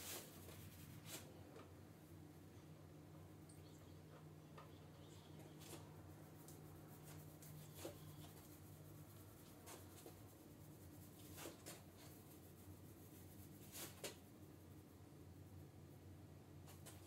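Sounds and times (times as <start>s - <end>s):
low room hum: 0.0s - 17.0s
faint taps and scratching: 3.5s - 12.6s, 13.2s - 14.3s.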